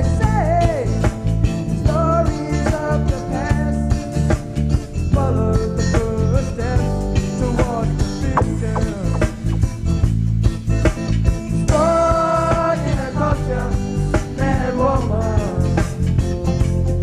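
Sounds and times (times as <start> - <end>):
rock band playing: 0.1 - 17.0
person singing: 5.2 - 9.6.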